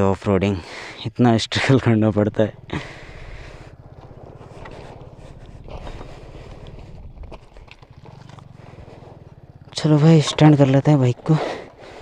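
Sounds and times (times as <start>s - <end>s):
motorcycle engine idling: 1.6s - 12.0s
footsteps on gravel: 2.6s - 12.0s.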